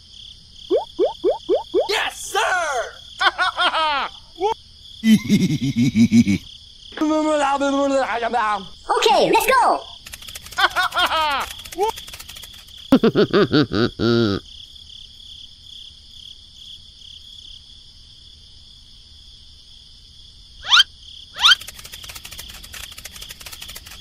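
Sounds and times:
insects chirring: 0.0 - 24.0
squeaky chattering calls: 20.6 - 21.9.

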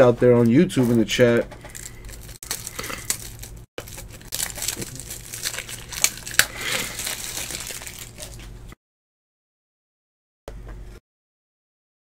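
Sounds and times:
plastic and card crinkling: 0.3 - 8.6.

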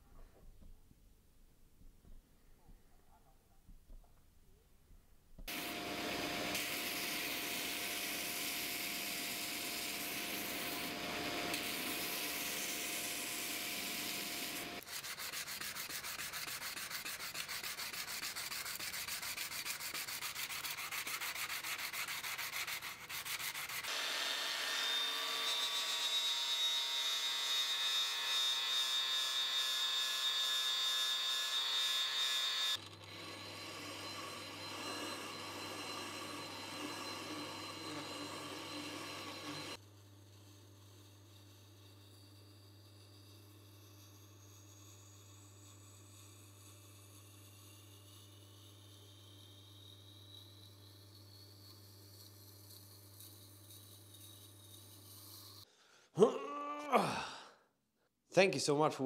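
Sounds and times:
grinder motor hum: 5.5 - 14.8, 32.7 - 39.8
sanding wooden handle: 5.5 - 25.9, 31.1 - 39.8.

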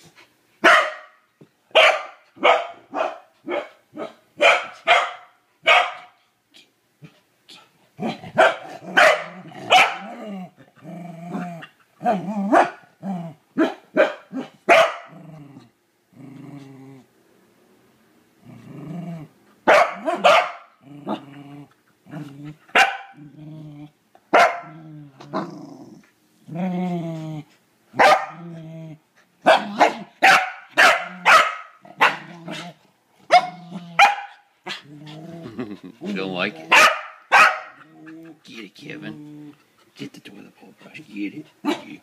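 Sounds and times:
dog barking: 0.6 - 6.2, 8.4 - 10.1, 12.5 - 12.8, 13.6 - 15.1, 19.7 - 20.7, 22.7 - 23.2, 24.3 - 24.7, 28.0 - 28.4, 29.4 - 32.2, 33.3 - 34.8, 36.7 - 37.8
dog growling: 7.5 - 13.4, 14.4 - 17.1, 18.4 - 19.4, 20.8 - 24.0, 24.7 - 27.6, 28.3 - 30.2, 31.0 - 36.8, 37.8 - 39.8.

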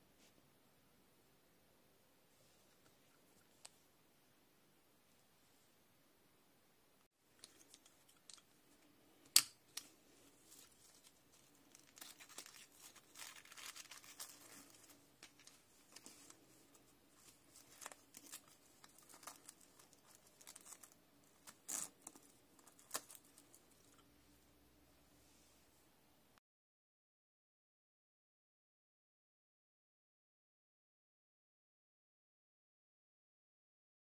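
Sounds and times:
scratchy rustling: 9.9 - 24.0.

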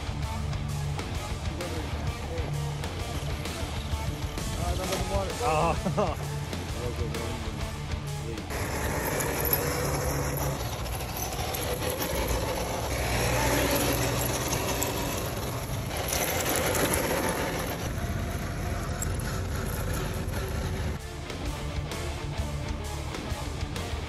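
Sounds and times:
toy car motor whirring: 8.5 - 21.0
tyres crunching on gravel: 8.5 - 21.0.

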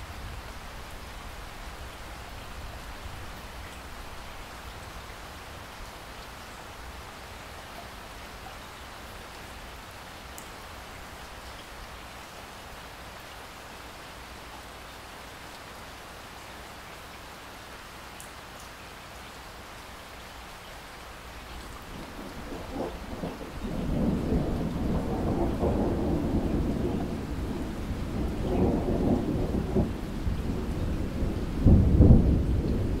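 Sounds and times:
heavy rain splashing into water: 0.0 - 33.0
low roll of thunder: 21.8 - 33.0.

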